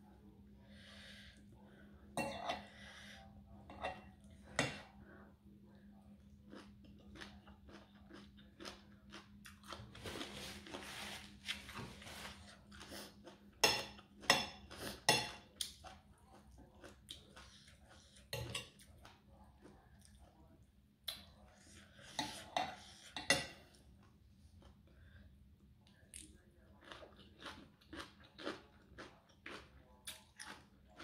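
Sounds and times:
slurping and chewing: 6.2 - 20.4, 25.9 - 31.0.

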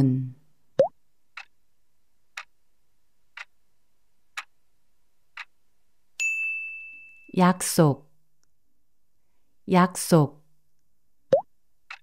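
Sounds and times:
clock ticking: 0.8 - 1.6, 2.3 - 2.6, 3.3 - 3.6, 4.3 - 4.6, 5.3 - 5.6
bright ding: 6.2 - 7.4.

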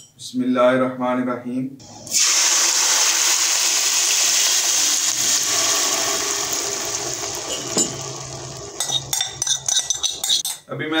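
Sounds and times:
liquid pouring into hot pan: 2.1 - 10.3.

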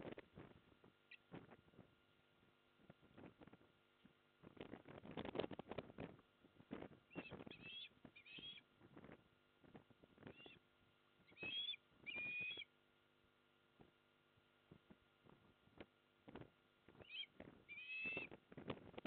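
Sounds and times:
osprey whistled calls: 7.1 - 8.6, 10.3 - 10.6, 11.3 - 12.7, 17.0 - 18.3.

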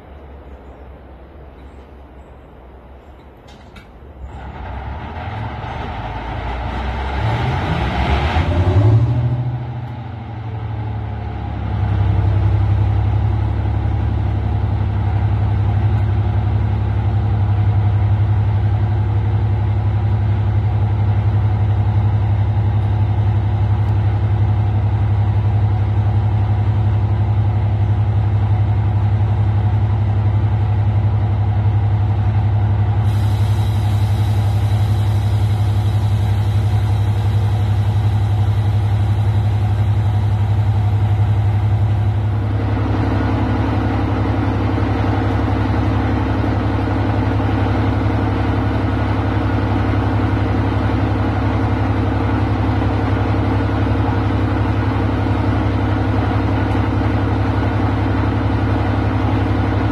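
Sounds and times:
diesel locomotive engine idling: 0.0 - 59.9
high hiss: 33.0 - 40.8.

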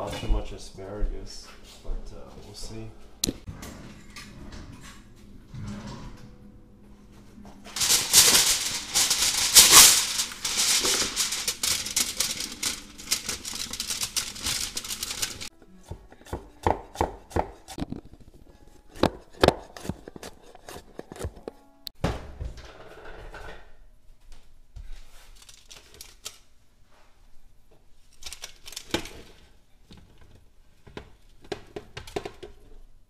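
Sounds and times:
foil crinkling: 7.8 - 15.5, 25.3 - 26.4, 28.1 - 29.4
knife chopping on wooden board: 15.8 - 17.8.

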